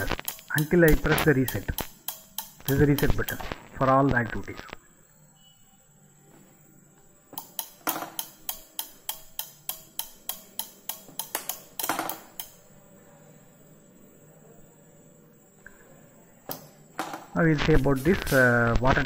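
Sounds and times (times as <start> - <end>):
relays clicking rapidly: 0.0 - 3.5.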